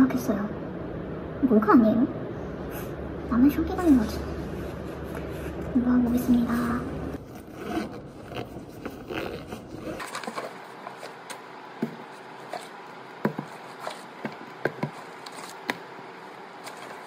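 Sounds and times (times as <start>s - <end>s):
cloth rustling: 3.9s - 17.0s
books knocking on a desk: 11.8s - 12.1s, 13.2s - 15.0s.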